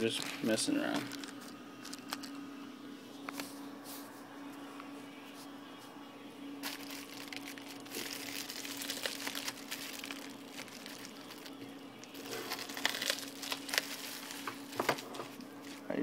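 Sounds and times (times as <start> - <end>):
plastic mailer crinkling: 0.0 - 2.4, 6.6 - 15.9
steady low hum: 0.0 - 16.0.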